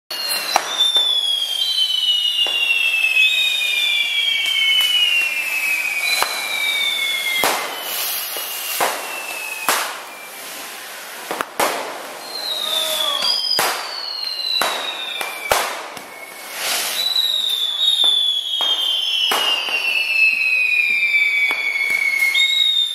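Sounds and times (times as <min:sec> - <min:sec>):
descending firework whistles: 0:00.1 - 0:22.9
fountain fireworks hissing: 0:00.1 - 0:22.9
firecracker bangs: 0:00.2 - 0:22.4.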